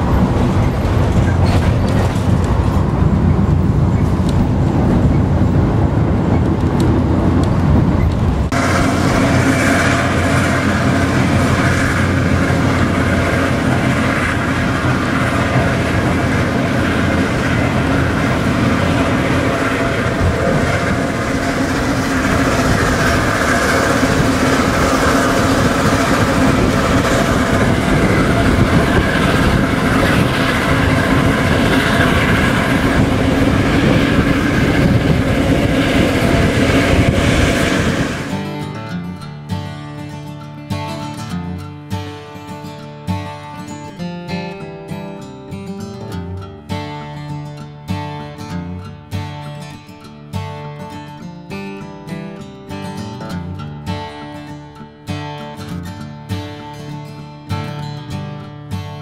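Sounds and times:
train wheels rumbling on rails: 0.0 - 38.9.

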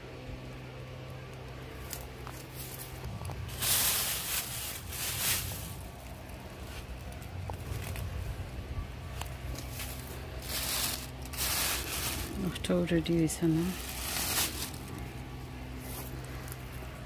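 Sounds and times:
steady low hum: 0.0 - 17.0
leaves rustling: 1.8 - 17.0.

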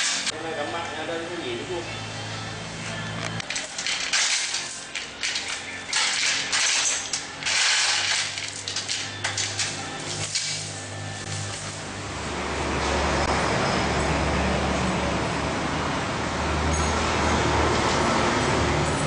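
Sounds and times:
steel chains rattling and clinking: 3.4 - 10.8.

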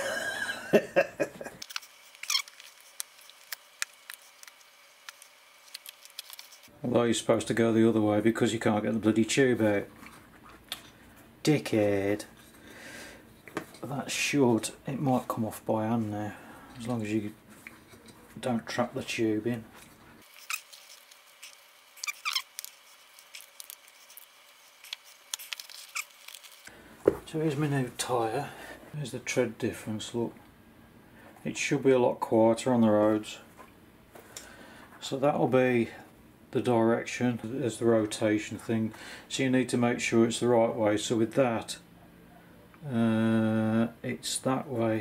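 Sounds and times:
rubber squeak: 2.1 - 2.8, 20.3 - 24.2, 24.9 - 26.5.

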